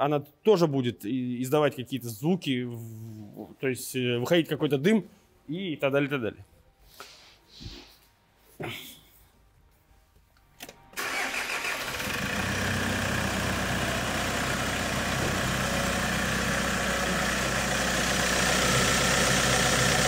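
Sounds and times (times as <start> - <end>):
diesel engine starting and idling: 10.9 - 20.0.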